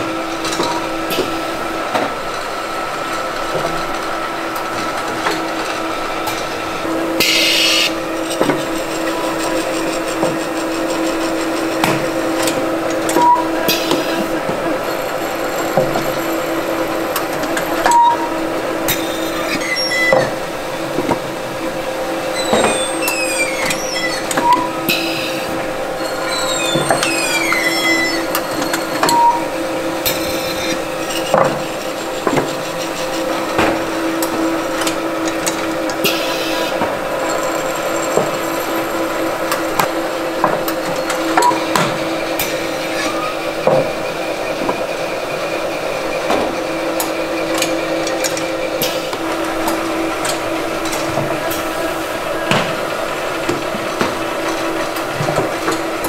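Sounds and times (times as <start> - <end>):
machine hum: 0.0 - 56.0
brief falling squeals: 19.2 - 20.2, 22.4 - 25.4, 26.0 - 29.5.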